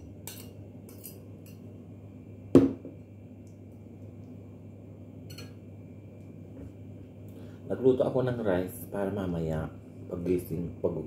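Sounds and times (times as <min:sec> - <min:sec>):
bowl knocking on table: 0:02.6 - 0:03.0
metal spoon clinking on ceramic bowl: 0:05.3 - 0:05.6.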